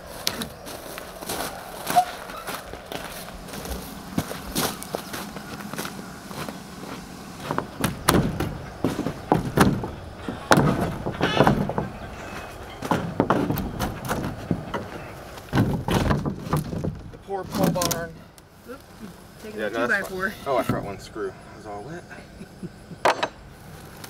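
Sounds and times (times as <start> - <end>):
wooden boards knocking: 7.4 - 18.0.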